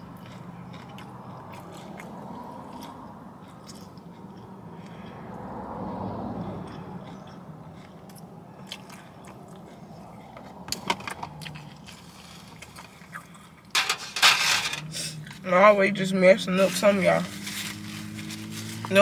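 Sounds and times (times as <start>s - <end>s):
chewing and biting: 0.0s - 13.7s
rustling: 17.2s - 18.9s.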